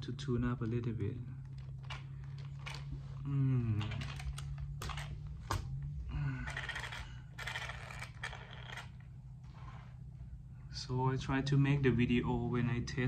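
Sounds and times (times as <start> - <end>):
low hum: 0.0 - 13.0
plastic parts clicking and rattling: 1.4 - 3.1, 3.8 - 5.7, 6.4 - 9.0.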